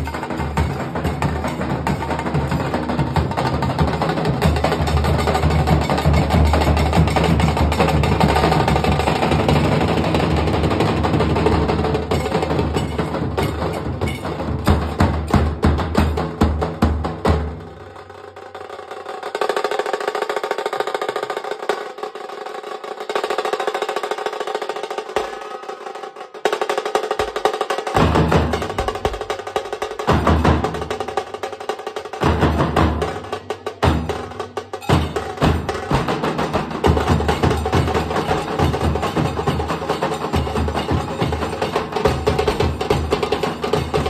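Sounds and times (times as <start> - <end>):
deep barrel drum beats: 0.0 - 17.8, 26.5 - 44.0
higher drumming: 0.0 - 18.0, 23.2 - 44.0.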